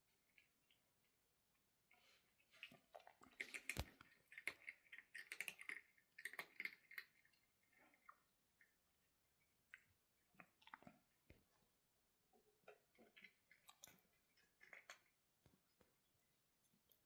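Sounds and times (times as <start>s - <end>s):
cat crunching dry food: 2.6s - 8.8s.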